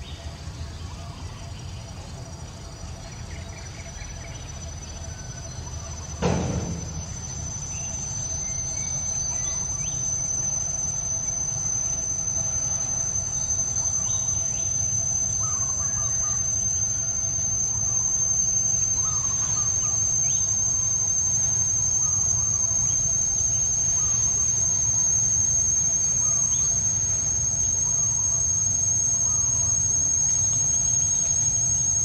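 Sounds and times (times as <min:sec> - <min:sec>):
high-pitched insect drone: 0:00.0 - 0:32.0
sharp knock: 0:06.2 - 0:07.2.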